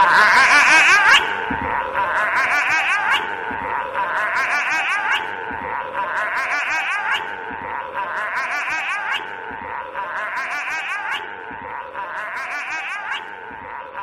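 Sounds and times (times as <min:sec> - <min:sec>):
high-pitched giggling laugh: 0:00.0 - 0:01.2, 0:02.0 - 0:03.2, 0:03.9 - 0:05.2, 0:06.0 - 0:07.2, 0:08.0 - 0:09.2, 0:10.0 - 0:11.2, 0:12.0 - 0:13.2.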